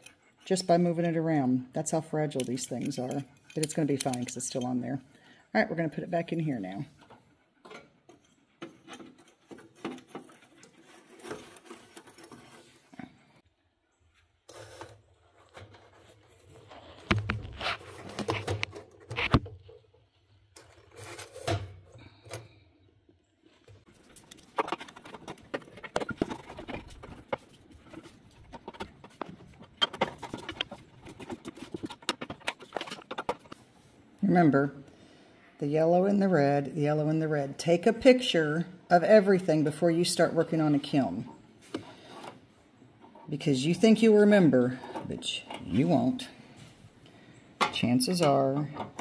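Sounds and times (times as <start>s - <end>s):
handling clicks knocks and rustles: 1.8s - 5.0s, 6.3s - 13.2s, 14.5s - 22.6s, 23.6s - 33.8s, 40.7s - 49.0s.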